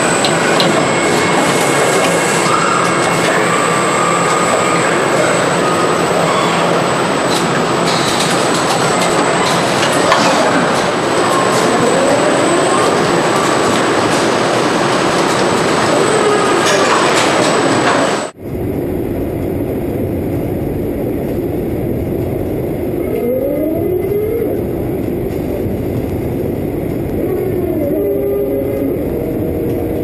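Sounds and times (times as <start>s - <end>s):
factory machinery noise: 0.0s - 30.0s
low machine hum: 18.3s - 30.0s
robot arm motors whining: 23.0s - 30.0s.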